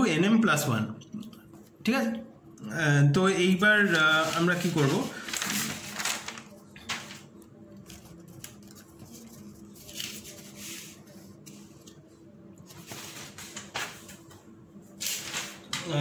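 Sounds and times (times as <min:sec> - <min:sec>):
paper rustling and sliding: 0:03.8 - 0:14.3, 0:15.0 - 0:15.8.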